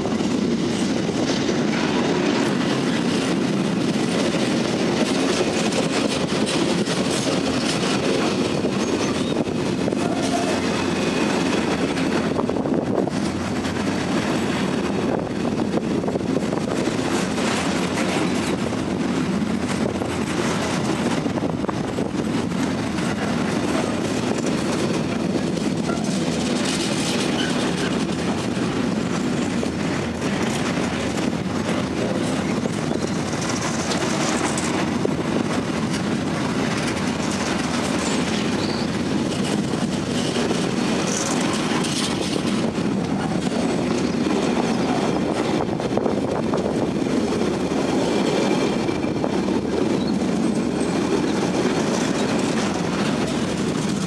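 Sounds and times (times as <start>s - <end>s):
freight train wheels rumbling: 0.0s - 54.0s.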